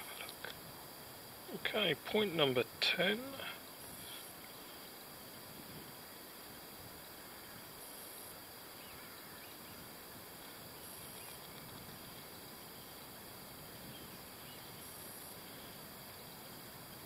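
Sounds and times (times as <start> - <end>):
low steady hiss: 0.0 - 17.0
faint distant calls: 7.1 - 17.0.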